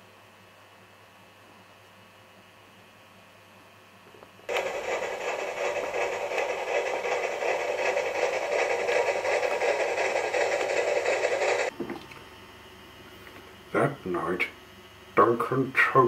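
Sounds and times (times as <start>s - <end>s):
model train motor whirring: 4.5s - 11.7s.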